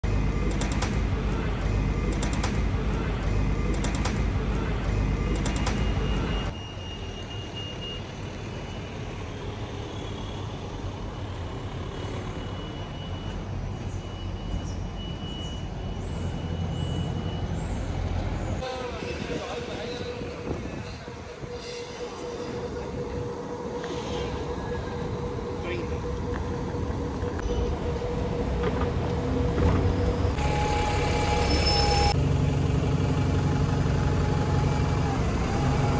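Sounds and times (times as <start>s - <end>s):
street traffic noise: 0.0s - 35.9s
thin high whistle: 30.4s - 32.2s.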